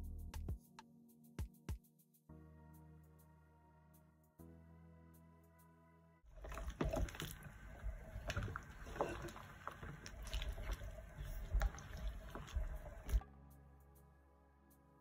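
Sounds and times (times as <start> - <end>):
background music: 0.0 - 9.5, 10.2 - 15.0
wet stirring of meat: 6.3 - 13.2.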